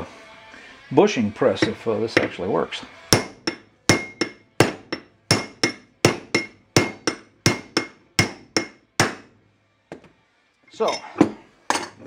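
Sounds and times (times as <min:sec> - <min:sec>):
hammer striking steel bolt: 0:03.2 - 0:09.3.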